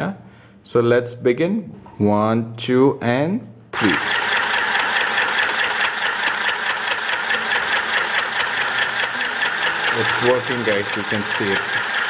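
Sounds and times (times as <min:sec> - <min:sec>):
sewing machine whirring: 0:03.8 - 0:12.0.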